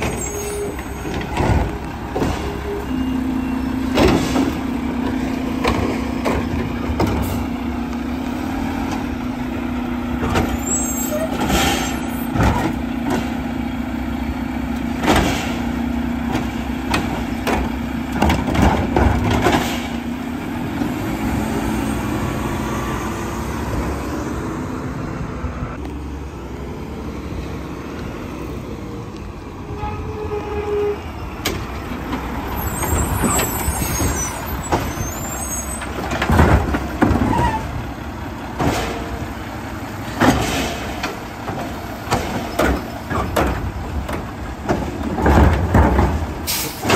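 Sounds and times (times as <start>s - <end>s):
trash carts knocking and clanking: 0.0s - 9.4s, 10.1s - 21.4s, 31.4s - 46.9s
garbage truck running: 0.0s - 46.9s.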